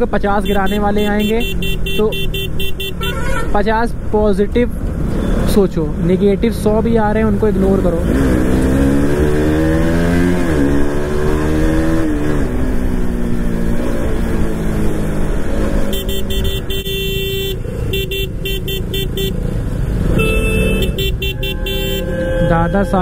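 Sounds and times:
vehicle horn honking: 0:00.4 - 0:03.5, 0:15.9 - 0:19.5, 0:20.2 - 0:23.0.

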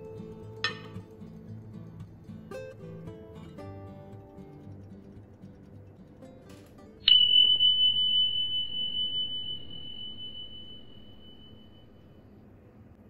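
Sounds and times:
bright chime ding: 0:07.1 - 0:12.0.

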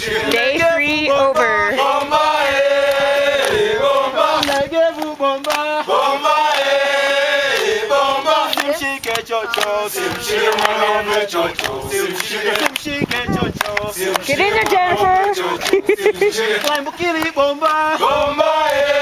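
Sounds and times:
men singing a chant: 0:00.0 - 0:19.0
hand claps: 0:02.8 - 0:06.8, 0:07.5 - 0:19.0.

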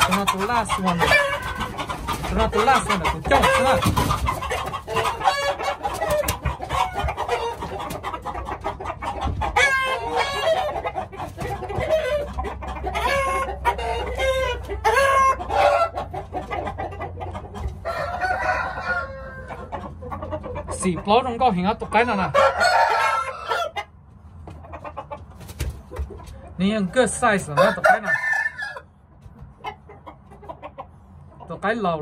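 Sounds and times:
roosters crowing: 0:00.0 - 0:20.6, 0:21.9 - 0:24.0, 0:26.3 - 0:29.1
hens clucking: 0:00.0 - 0:32.0.

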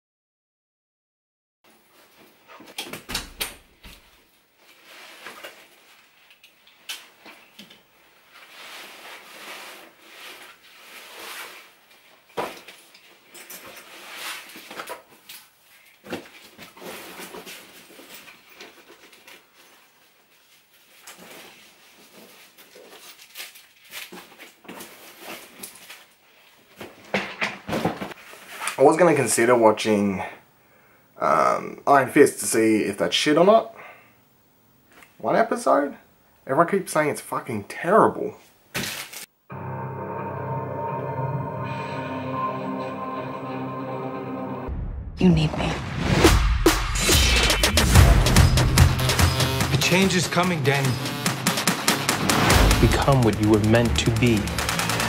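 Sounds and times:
fabric and straps rustling: 0:03.8 - 0:27.1.

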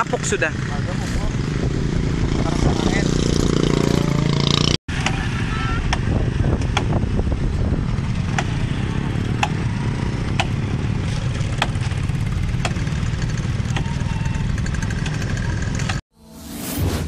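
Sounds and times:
motorcycle engine idling: 0:08.3 - 0:16.0
branches being chopped: 0:11.4 - 0:12.0.

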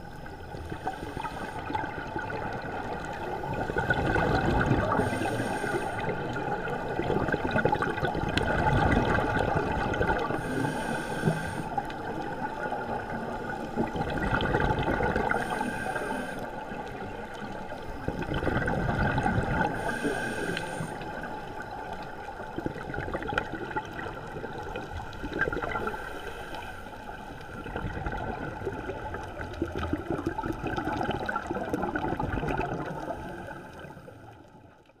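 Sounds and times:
exhaled air bubbling: 0:00.0 - 0:26.3, 0:27.0 - 0:34.7
underwater regulator breathing: 0:00.6 - 0:01.8, 0:04.8 - 0:06.2, 0:10.2 - 0:12.0, 0:15.1 - 0:16.7, 0:19.5 - 0:21.4.

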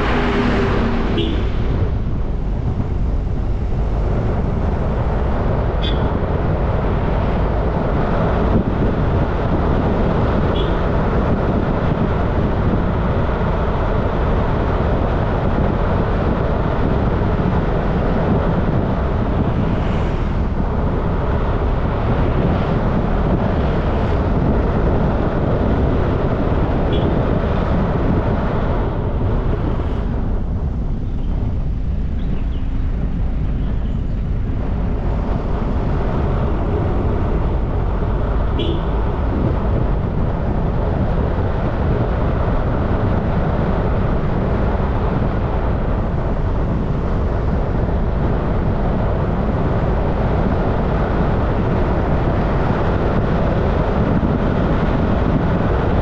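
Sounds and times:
wind rush and road noise: 0:00.0 - 0:56.0.

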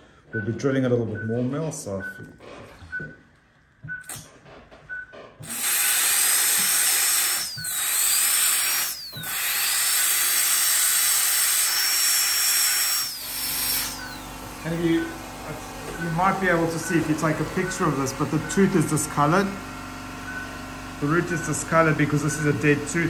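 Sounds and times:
short electronic beeps: 0:00.4 - 0:03.3, 0:03.9 - 0:04.2, 0:13.9 - 0:14.3, 0:16.8 - 0:18.9, 0:20.3 - 0:20.6
dental drill whining: 0:05.4 - 0:23.0.

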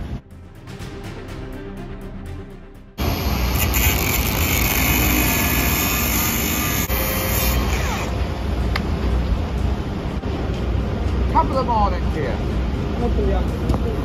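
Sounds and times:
angle grinder cutting steel: 0:03.0 - 0:08.3.

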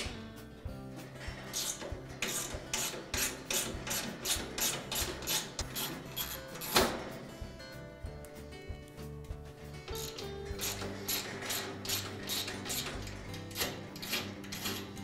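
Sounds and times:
screwdriver scraping screw: 0:01.4 - 0:06.9, 0:09.9 - 0:15.0.

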